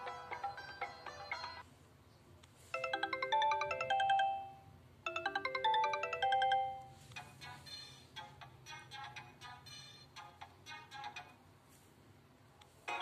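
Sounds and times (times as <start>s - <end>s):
chime-like ringtone melody: 2.8s - 7.0s.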